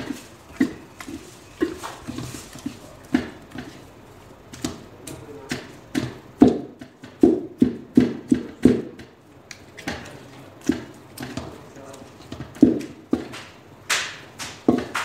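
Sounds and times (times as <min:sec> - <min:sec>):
wooden spoon knocking on a pot: 0:05.5 - 0:09.2.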